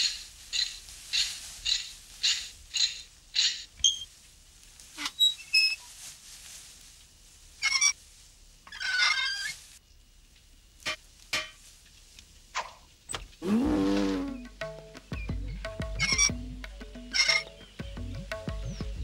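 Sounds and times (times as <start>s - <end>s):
squeaky metallic chirps: 0.0s - 4.1s, 7.6s - 8.0s, 8.7s - 9.6s, 14.2s - 19.0s.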